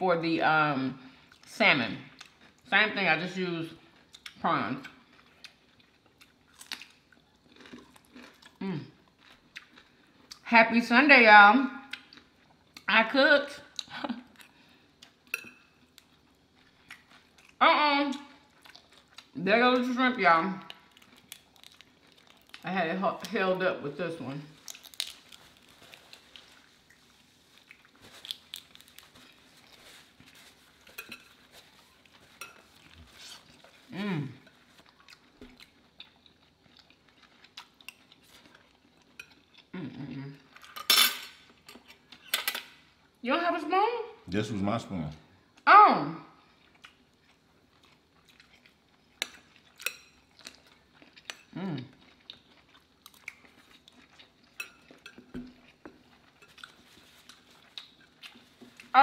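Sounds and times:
chewing: 0:03.8 - 0:10.4, 0:13.7 - 0:19.4, 0:20.6 - 0:23.4, 0:24.6 - 0:40.8, 0:46.4 - 0:59.0.

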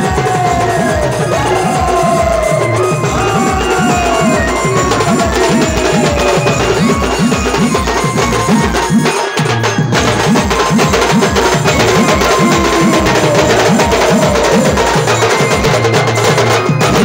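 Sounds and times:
fast drumbeat: 0:00.0 - 0:17.0
brass band playing: 0:11.6 - 0:15.4.

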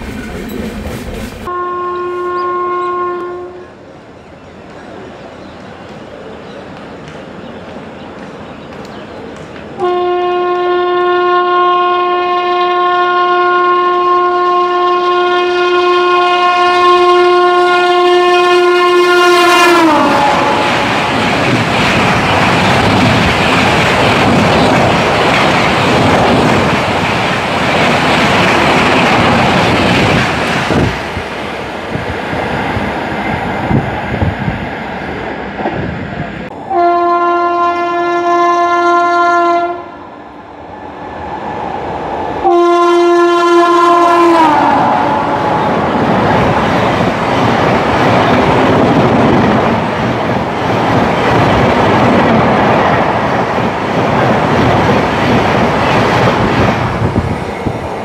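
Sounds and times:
rushing rail noise of coaches: 0:00.0 - 0:58.0
train horn blast: 0:01.4 - 0:03.8, 0:09.8 - 0:21.0, 0:36.6 - 0:40.0, 0:42.4 - 0:45.8.

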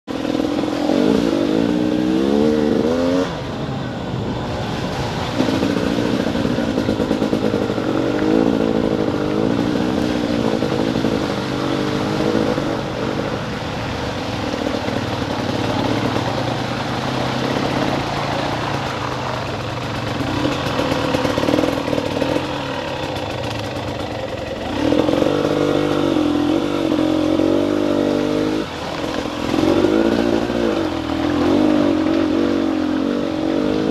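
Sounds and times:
dirt bike engine revving: 0:00.1 - 0:03.5, 0:05.4 - 0:33.9.

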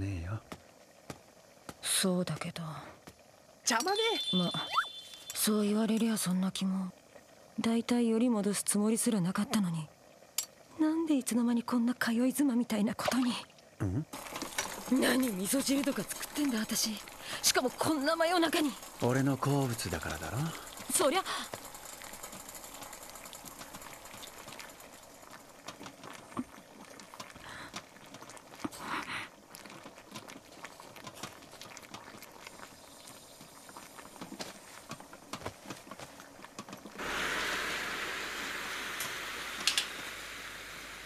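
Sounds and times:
gas burner hissing: 0:14.1 - 0:27.8, 0:36.7 - 0:41.0.

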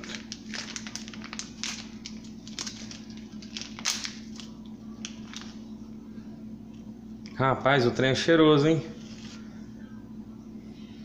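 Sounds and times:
plastic sleeve crinkling: 0:00.0 - 0:05.6.

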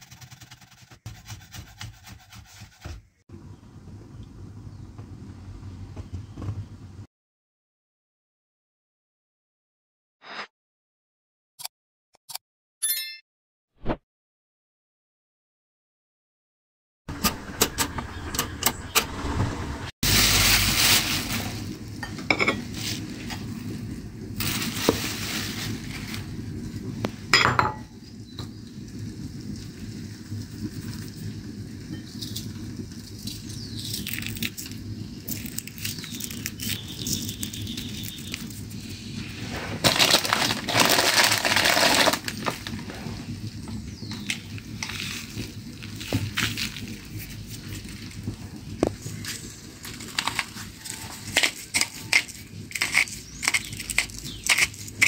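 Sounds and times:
plastic bag crinkling: 0:20.0 - 0:21.9, 0:39.8 - 0:42.8
kitchen utensils clinking: 0:22.0 - 0:22.9.

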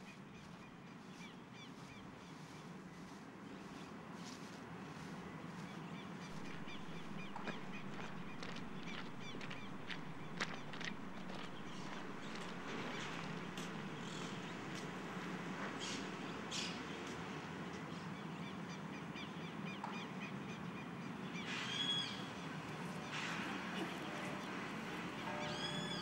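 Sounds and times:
birds chirping and calling: 0:05.6 - 0:26.0
low background rumble: 0:06.2 - 0:18.4.

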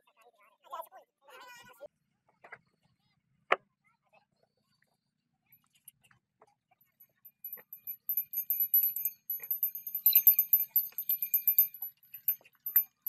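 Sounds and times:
harness bells jingling: 0:07.3 - 0:13.0.

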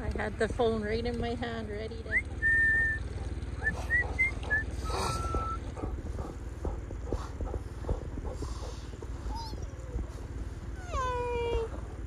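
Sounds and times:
outboard motor running: 0:00.0 - 0:12.0
short whistles: 0:02.1 - 0:05.7.

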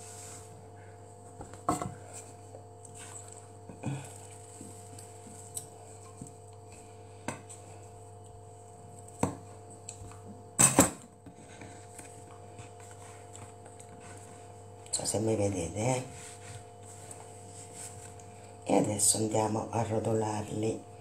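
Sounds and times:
steady low hum: 0:00.0 - 0:21.0
rolling pin flattening dough: 0:11.2 - 0:18.2.

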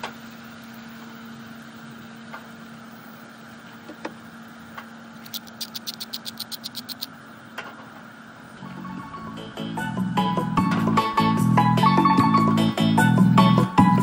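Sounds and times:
salt grinder clicking: 0:05.2 - 0:07.1.

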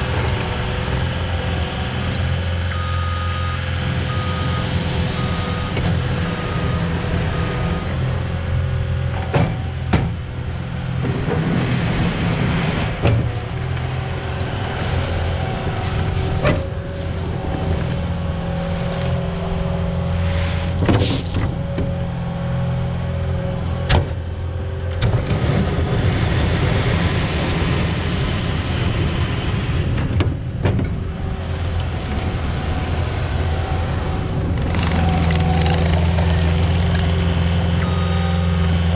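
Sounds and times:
diesel engine under load: 0:00.0 - 0:38.9
reversing alarm beeping: 0:02.7 - 0:05.8, 0:37.8 - 0:38.9.

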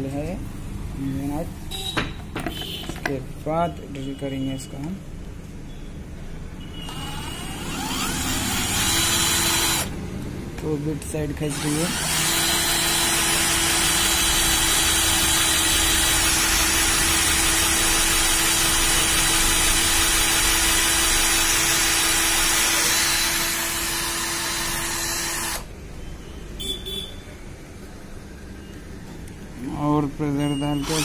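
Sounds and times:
drill cutting into metal plate: 0:06.9 - 0:09.9, 0:11.5 - 0:25.7.

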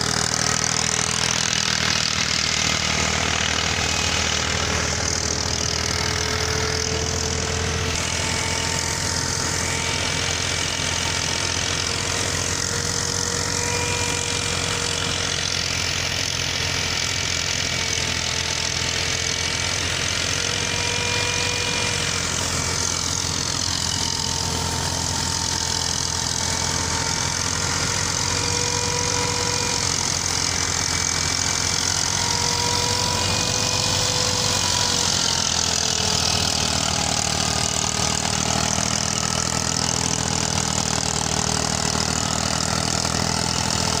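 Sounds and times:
threshing machinery whine: 0:00.0 - 0:44.0
tractor diesel engine running: 0:00.0 - 0:44.0.

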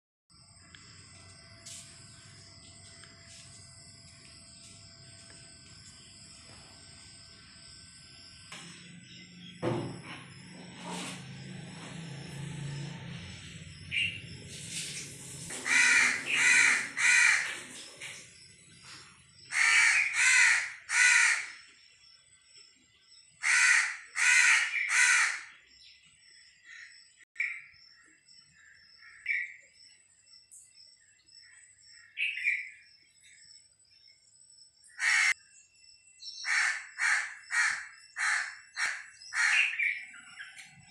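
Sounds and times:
small birds calling: 0:13.8 - 0:40.9
crow cawing: 0:15.5 - 0:17.7, 0:19.5 - 0:21.6, 0:23.4 - 0:25.6, 0:34.9 - 0:35.4, 0:36.4 - 0:40.0.

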